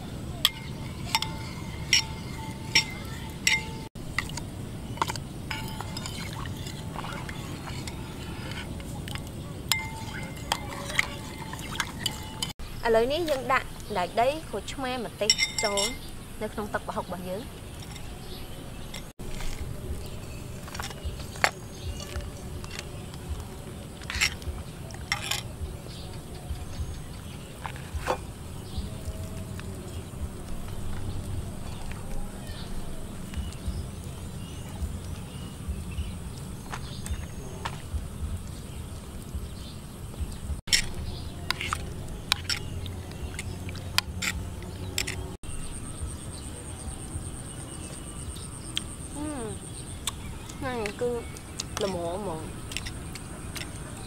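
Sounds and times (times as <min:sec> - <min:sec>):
steady low rumble: 0:00.0 - 0:50.0
metal spoon scraping a bowl: 0:00.4 - 0:12.5, 0:17.6 - 0:19.6, 0:25.0 - 0:25.6, 0:40.7 - 0:45.3.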